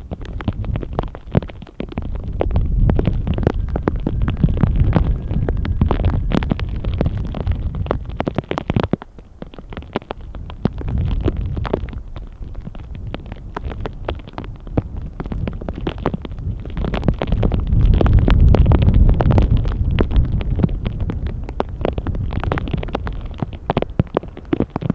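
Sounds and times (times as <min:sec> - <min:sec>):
hailstones clicking: 0:00.0 - 0:24.9
wind buffeting microphone: 0:00.0 - 0:24.9.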